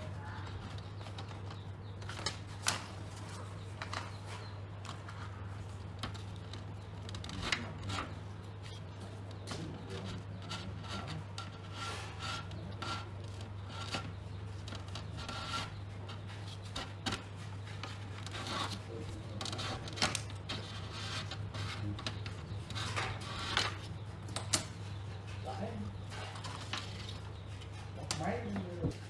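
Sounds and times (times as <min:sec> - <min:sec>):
hand scraping rusty metal: 0:05.1 - 0:24.2.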